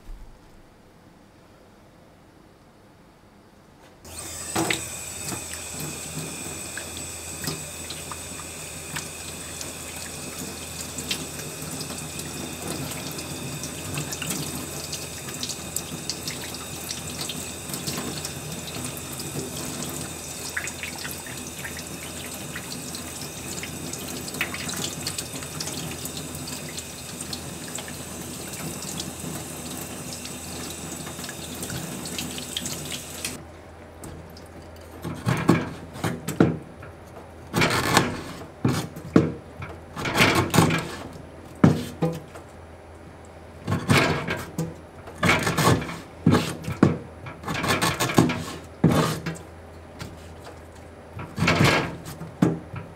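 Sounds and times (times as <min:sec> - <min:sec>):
tap water splashing into sink: 0:06.6 - 0:33.4.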